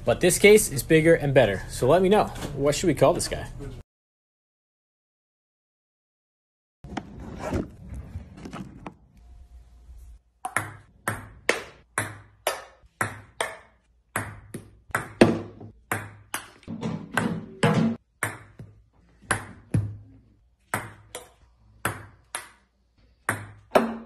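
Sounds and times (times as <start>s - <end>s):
ping-pong ball clicks: 10.4s - 15.2s.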